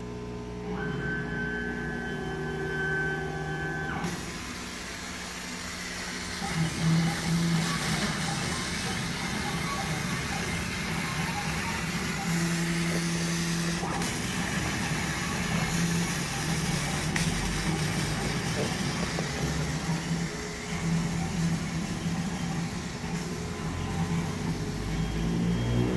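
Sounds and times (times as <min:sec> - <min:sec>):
drive motors humming: 0:00.2 - 0:25.9.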